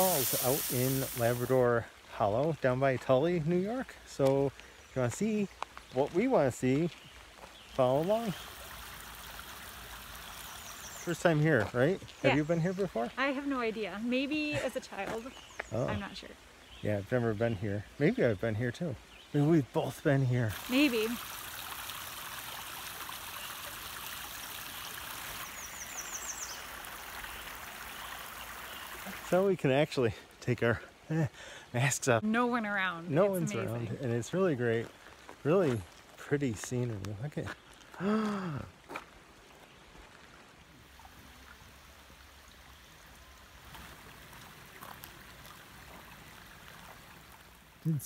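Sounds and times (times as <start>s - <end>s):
creek babbling over stones: 0.0s - 48.0s.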